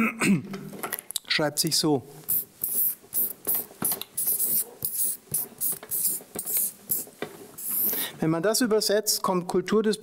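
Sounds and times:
marker scratching on paper: 0:02.3 - 0:08.0.

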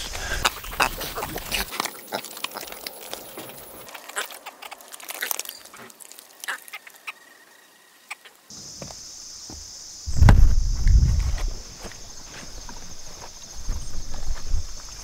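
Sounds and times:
farm animals calling: 0:00.0 - 0:08.4.

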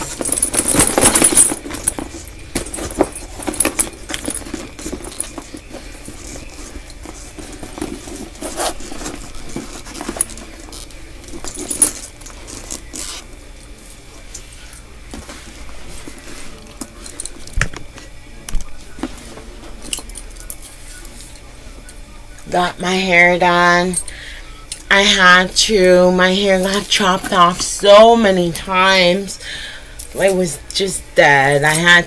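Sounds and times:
metal hardware clinking: 0:00.0 - 0:12.3
handbag rustling: 0:00.0 - 0:13.4, 0:26.3 - 0:29.3.

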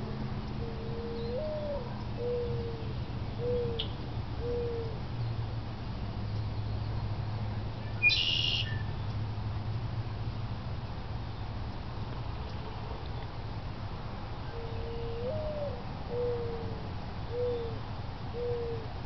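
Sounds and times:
dove cooing: 0:00.1 - 0:05.0, 0:14.5 - 0:19.0
bird high call: 0:08.0 - 0:08.9.

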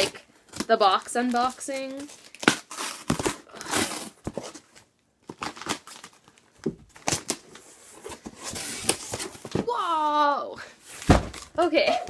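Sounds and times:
cardboard box crinkling: 0:00.0 - 0:09.6
cardboard tearing: 0:01.2 - 0:04.7.

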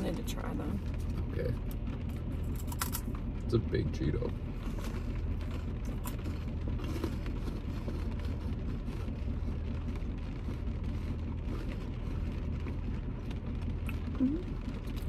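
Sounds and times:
vehicle cabin rumble: 0:00.0 - 0:15.0
crunchy snack chewing: 0:04.6 - 0:15.0.

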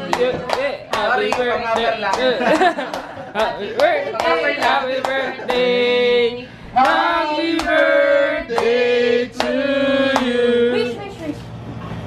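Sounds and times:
hand claps: 0:00.0 - 0:05.6, 0:07.6 - 0:07.9
group singing: 0:00.0 - 0:11.0.

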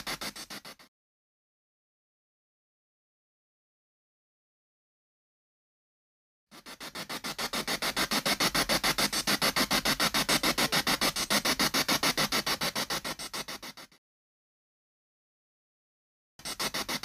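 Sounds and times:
pulsing radio static: 0:06.6 - 0:14.0, 0:16.4 - 0:17.0.

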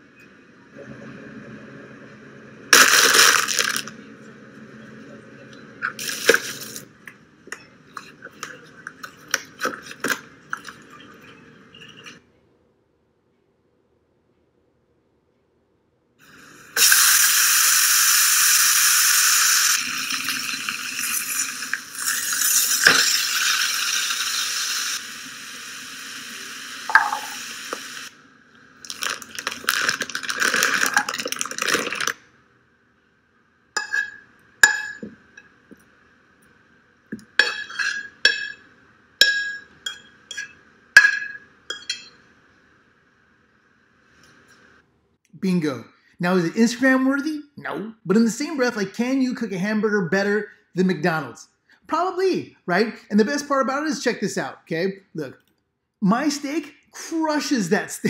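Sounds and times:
vegetables sizzling in pan: 0:16.8 - 0:28.1
utensils clinking on plate: 0:33.8 - 0:35.2, 0:37.4 - 0:38.6, 0:39.2 - 0:42.2.

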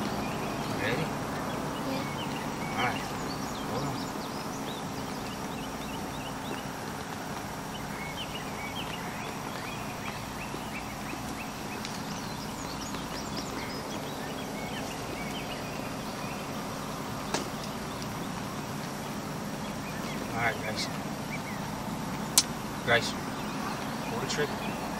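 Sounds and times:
steady outdoor hiss: 0:00.0 - 0:24.9.

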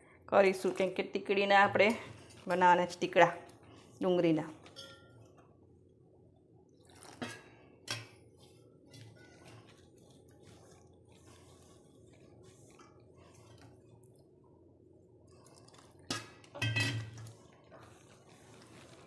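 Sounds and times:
light clinks against metal bowl: 0:04.7 - 0:05.2
hands rustling flour in bowl: 0:08.2 - 0:14.4, 0:17.3 - 0:19.0.

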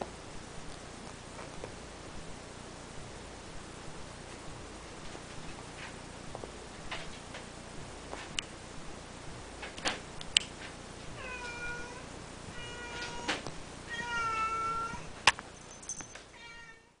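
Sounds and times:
kitten meowing: 0:11.2 - 0:15.1.

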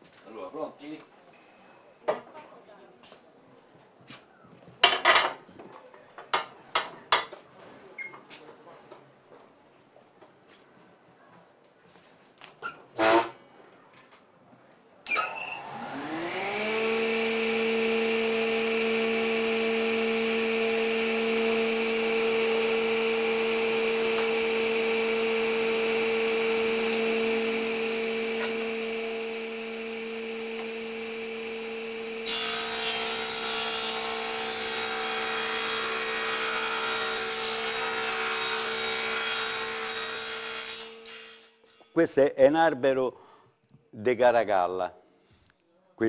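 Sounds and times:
electric motor whine: 0:15.5 - 0:33.2
rasping wood cutting: 0:15.7 - 0:40.9.

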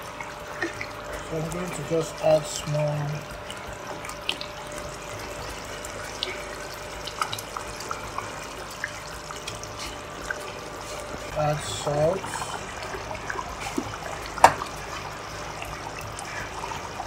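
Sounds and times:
soup bubbling and popping: 0:03.3 - 0:11.4, 0:12.2 - 0:17.0.

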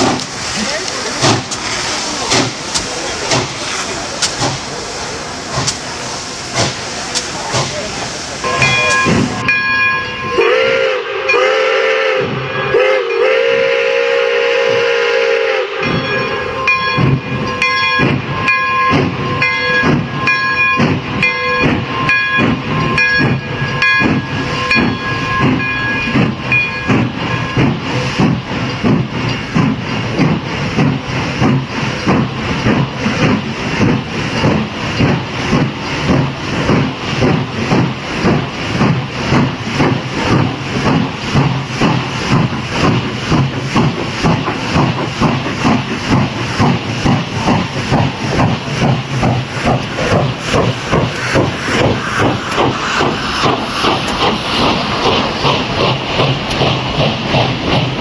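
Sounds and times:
steam locomotive chuffing: 0:00.0 - 0:58.0
steam whistle chord: 0:08.4 - 0:16.9.

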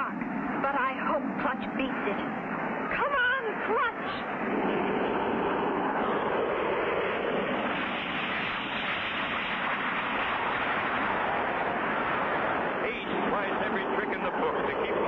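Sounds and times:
airplane rushing drone: 0:00.0 - 0:15.0.

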